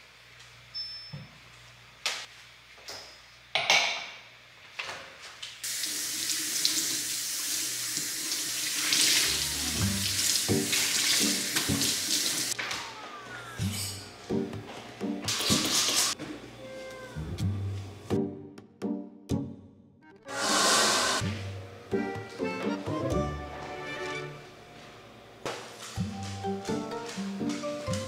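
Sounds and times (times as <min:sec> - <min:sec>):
water running from a tap into a sink: 0:05.6 - 0:12.6, 0:15.3 - 0:16.2.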